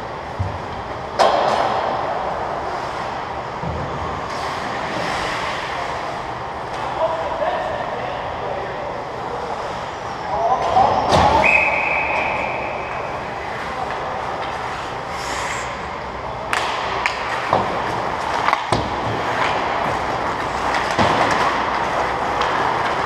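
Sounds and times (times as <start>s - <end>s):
hockey skates scraping ice: 1.7s - 3.4s, 4.2s - 6.3s, 12.2s - 15.9s, 16.5s - 23.0s
sticks and puck clacking: 12.2s - 15.8s, 16.4s - 23.0s.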